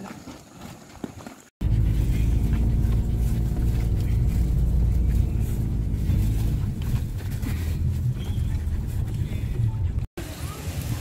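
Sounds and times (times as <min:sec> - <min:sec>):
car engine rumble: 0:01.6 - 0:10.2
road noise inside car: 0:01.6 - 0:10.6.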